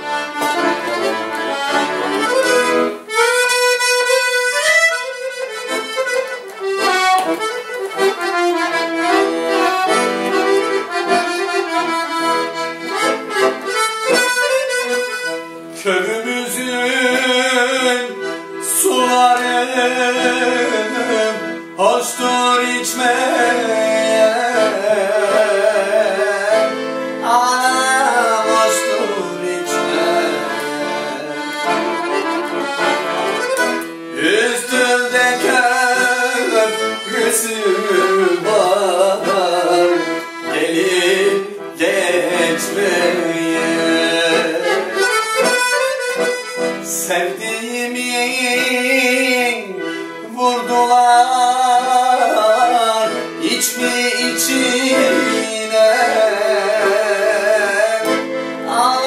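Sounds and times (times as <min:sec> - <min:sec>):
accordion folk melody: 0:00.0 - 0:59.0.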